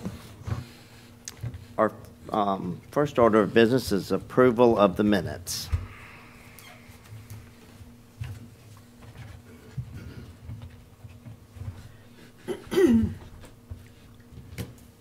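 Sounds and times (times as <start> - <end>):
low electrical hum: 0.0 - 15.0
soft knocks and shuffles: 7.0 - 12.4.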